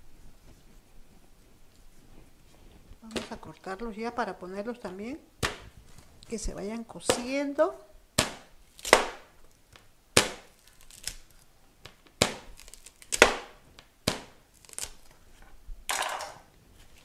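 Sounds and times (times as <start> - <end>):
knife chopping corn cobs: 7.0 - 7.4, 8.2 - 9.3, 10.2 - 11.2, 11.8 - 15.0.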